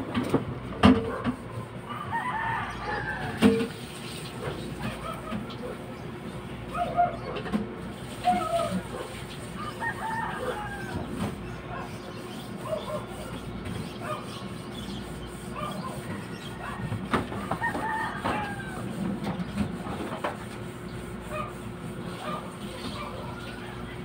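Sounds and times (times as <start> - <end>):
chickens clucking and calling: 1.4 - 24.0
rooster crowing: 1.9 - 3.7, 9.6 - 11.3, 16.2 - 19.0.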